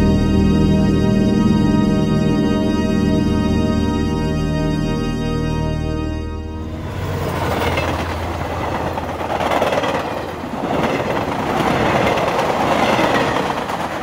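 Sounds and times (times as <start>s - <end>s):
low drone: 0.0s - 11.9s
rushing rattling noise: 6.7s - 14.0s.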